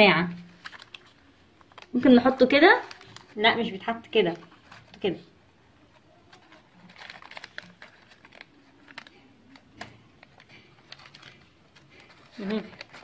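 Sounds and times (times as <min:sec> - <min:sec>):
doll dress rustling: 0:10.2 - 0:13.0.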